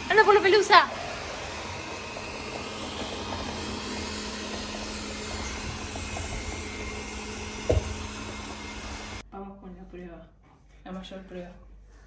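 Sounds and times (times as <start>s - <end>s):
robot vacuum cleaner whirring: 0.0s - 9.2s.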